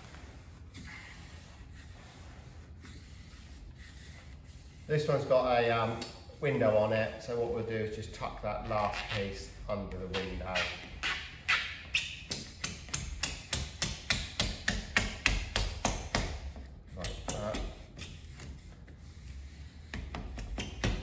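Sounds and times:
scratchy rubbing strokes on vinyl: 0:00.0 - 0:12.2.

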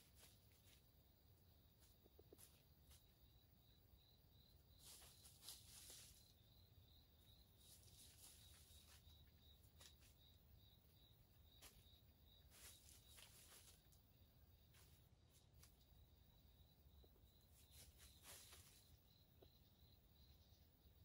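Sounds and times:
insect chirping: 0:00.0 - 0:21.0
soft rustles: 0:04.7 - 0:06.4, 0:07.6 - 0:10.2, 0:11.6 - 0:15.8, 0:17.5 - 0:19.1.

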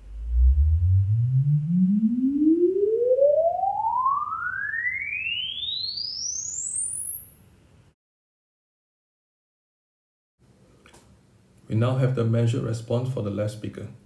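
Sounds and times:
rising sine sweep tone: 0:00.0 - 0:07.8.

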